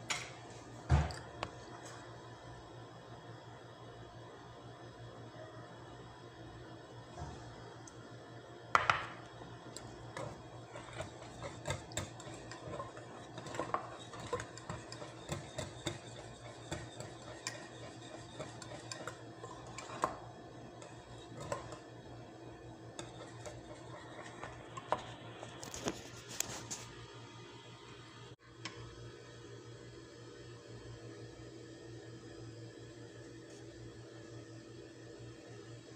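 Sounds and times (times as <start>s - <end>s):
low steady hum: 0.0s - 35.9s
whisk scraping ceramic bowl: 9.8s - 22.0s, 22.9s - 26.7s.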